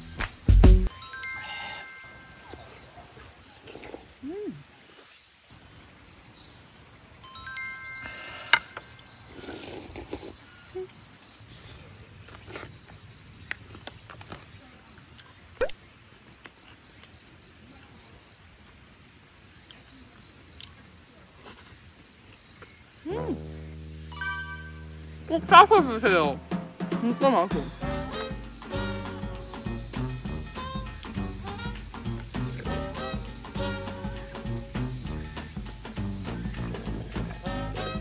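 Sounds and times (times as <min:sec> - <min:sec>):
background music: 0:00.0 - 0:02.1, 0:23.2 - 0:38.0
chime-like musical phrase: 0:00.9 - 0:02.9, 0:07.2 - 0:08.9, 0:24.0 - 0:25.7
insects chirping: 0:00.9 - 0:38.0.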